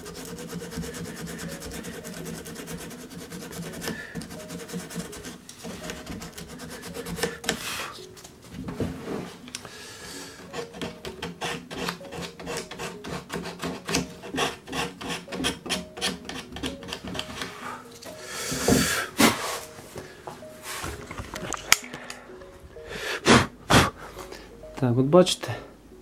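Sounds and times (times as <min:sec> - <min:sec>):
sandpaper rubbing on wood: 0:00.0 - 0:08.0, 0:10.5 - 0:17.6.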